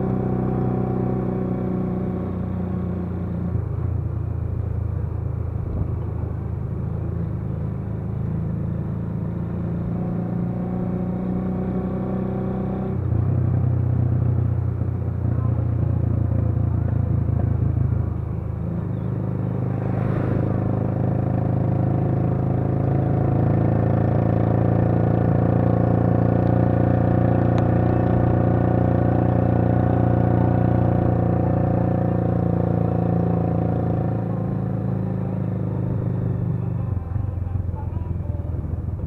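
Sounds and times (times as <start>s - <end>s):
road and wind noise: 0.0s - 39.0s
vehicle engine cruising: 0.0s - 39.0s.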